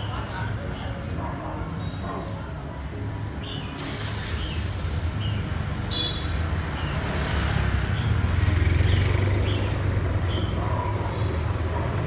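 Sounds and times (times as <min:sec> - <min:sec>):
street traffic: 0:00.0 - 0:12.0
motorbike engine passing: 0:06.5 - 0:12.0.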